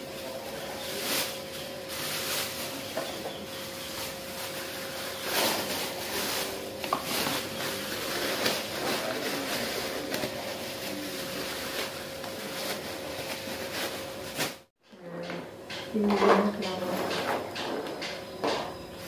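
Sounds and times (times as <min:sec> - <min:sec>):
plastic bags rustling: 0:00.0 - 0:14.7.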